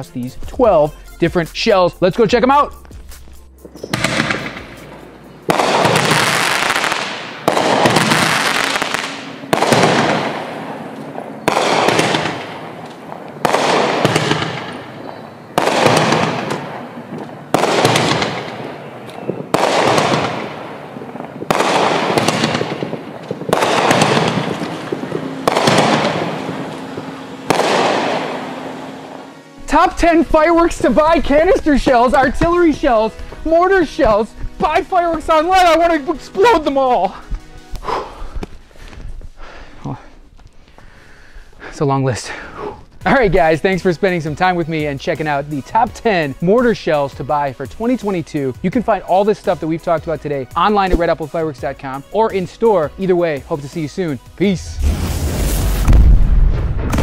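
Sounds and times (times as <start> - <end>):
firework shells banging: 3.6 - 37.4.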